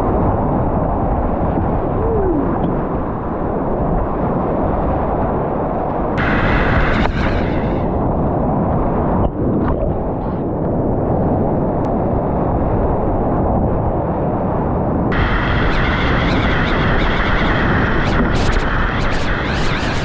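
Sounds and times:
rapids roaring: 6.2 - 8.0, 15.1 - 20.0.

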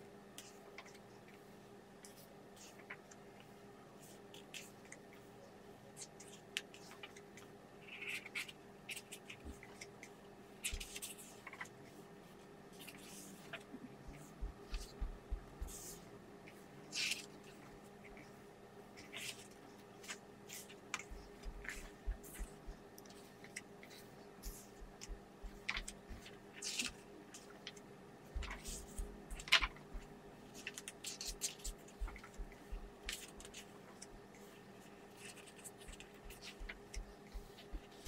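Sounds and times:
faint steady hum: 0.0 - 38.0
pages rustling and turning: 25.6 - 27.8, 28.4 - 32.4.

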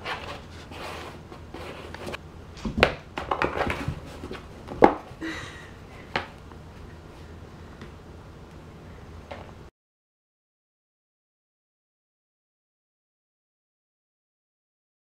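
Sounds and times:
kitten scraping cardboard: 0.0 - 2.2.

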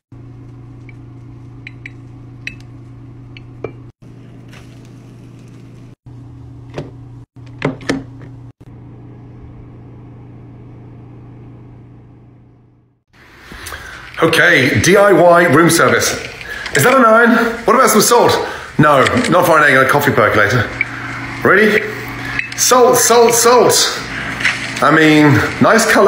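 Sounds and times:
low electrical hum: 0.1 - 26.0.

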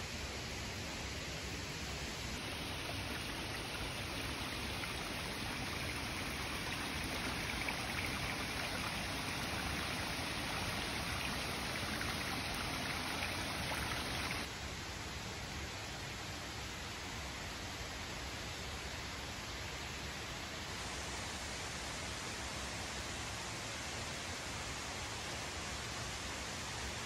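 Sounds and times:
stream splashing over rocks: 2.4 - 14.5.

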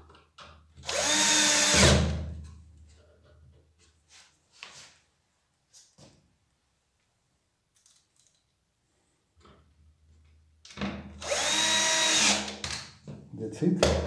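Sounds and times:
drill driving a screw: 0.8 - 2.1, 11.2 - 12.8.

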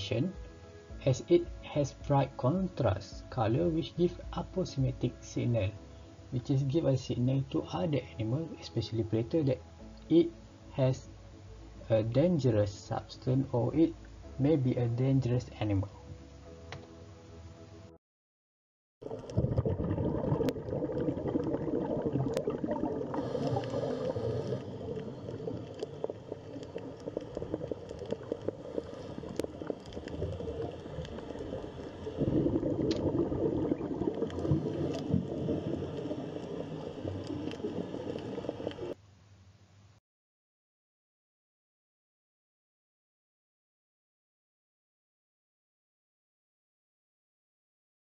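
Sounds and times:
small clicks underwater: 19.0 - 39.0
underwater gurgling and bubbling: 19.0 - 39.0.

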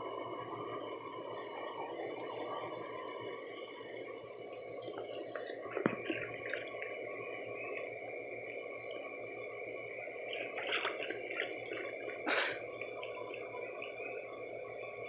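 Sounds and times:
dog splashing water: 5.1 - 6.9, 10.3 - 13.9.

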